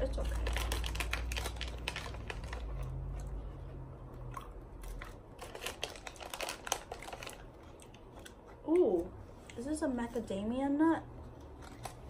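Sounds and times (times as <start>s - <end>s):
plastic pouches crinkling and tearing: 0.0s - 3.2s, 4.8s - 8.3s, 11.5s - 12.0s
nuts being chewed: 0.2s - 8.8s, 11.3s - 12.0s.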